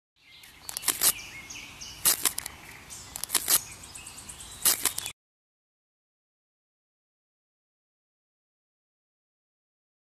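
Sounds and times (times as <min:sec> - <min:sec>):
sharp clicks: 0:00.4 - 0:01.2, 0:02.0 - 0:02.5, 0:03.1 - 0:03.6, 0:04.6 - 0:05.2.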